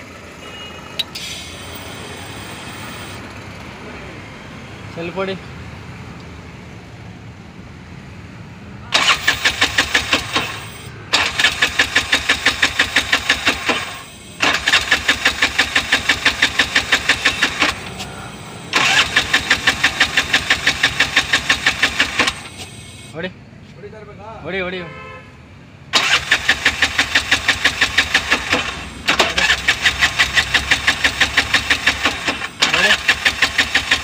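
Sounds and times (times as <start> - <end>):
engine cranking on starter: 8.9 - 23.1, 25.9 - 34.0.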